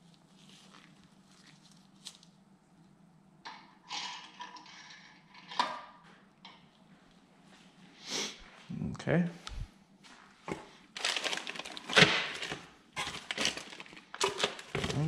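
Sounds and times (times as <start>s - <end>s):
gloved hands rubbing and rustling: 0.0s - 2.4s
faint low hum: 0.0s - 11.8s.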